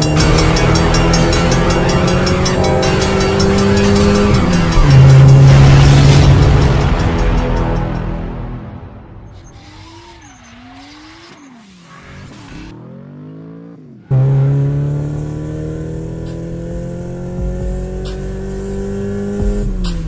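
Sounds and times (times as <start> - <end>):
car engine revving: 0.0 - 7.6, 9.5 - 20.0
falling whines: 9.3 - 12.7.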